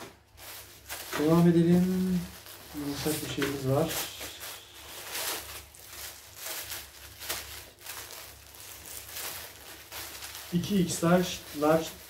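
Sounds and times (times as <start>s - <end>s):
plastic bag rustling and crinkling: 0.0s - 12.0s.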